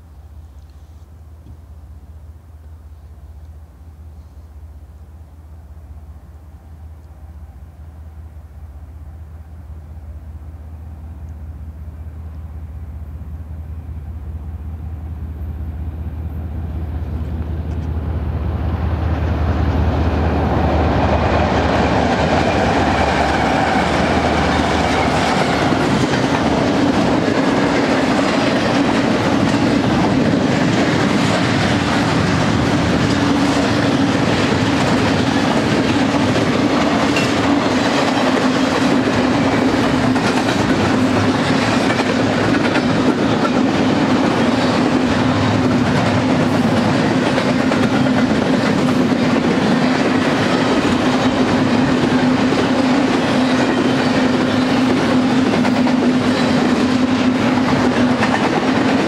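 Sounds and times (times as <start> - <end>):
diesel locomotives passing: 0.0 - 59.0
freight cars rumbling by: 11.7 - 59.0
wheels clicking over rail joints: 19.6 - 59.0.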